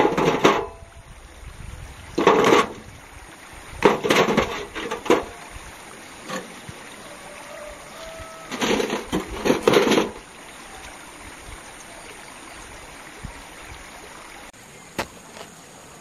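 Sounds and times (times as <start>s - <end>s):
metal wheelbarrow rattling: 0.0s - 0.8s, 2.2s - 2.9s, 3.8s - 5.4s, 8.4s - 10.2s.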